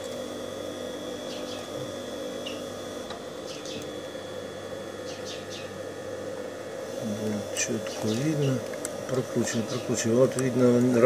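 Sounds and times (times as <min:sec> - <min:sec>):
sewing machine motor humming: 0:06.8 - 0:11.0.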